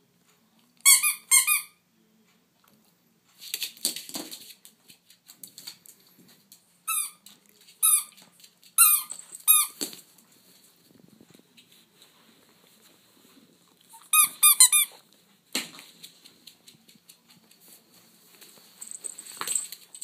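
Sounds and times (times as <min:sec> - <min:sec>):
rubber squeaky toy squeaking: 0:00.8 - 0:01.8, 0:13.9 - 0:15.0
clattering and scuffling: 0:15.3 - 0:20.0.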